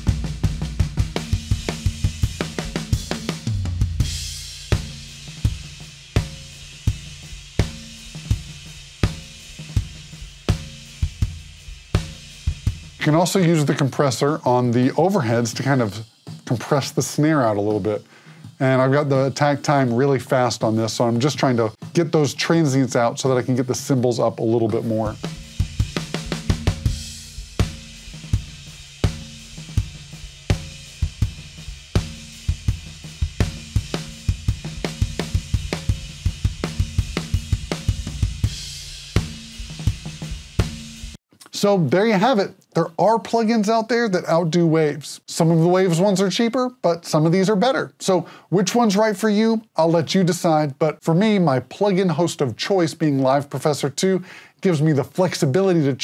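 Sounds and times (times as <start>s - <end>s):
low tom drum fill: 0.0s - 22.2s, 24.6s - 41.2s
drum kit playing a beat: 0.0s - 49.1s.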